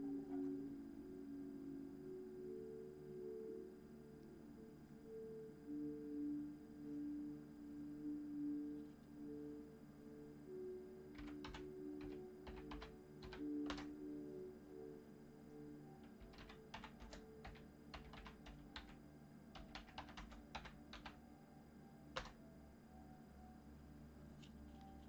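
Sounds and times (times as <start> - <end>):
computer keyboard typing: 11.2 - 13.9, 16.0 - 19.0, 19.6 - 21.2, 22.2 - 22.4.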